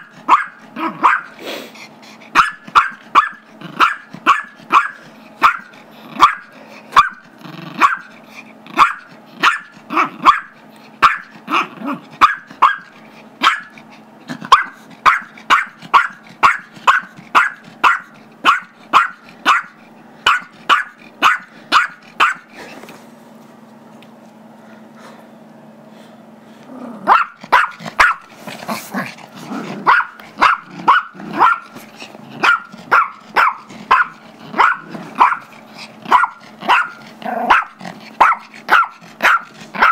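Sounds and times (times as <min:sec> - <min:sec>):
small dog barking: 0:00.0 - 0:01.4, 0:02.3 - 0:07.2, 0:07.8 - 0:08.1, 0:08.7 - 0:13.8, 0:14.4 - 0:22.5, 0:27.0 - 0:28.3, 0:29.8 - 0:31.8, 0:32.4 - 0:39.9
dog growling: 0:00.0 - 0:02.8, 0:03.4 - 0:10.3, 0:11.3 - 0:12.3, 0:13.0 - 0:18.3, 0:26.6 - 0:39.9.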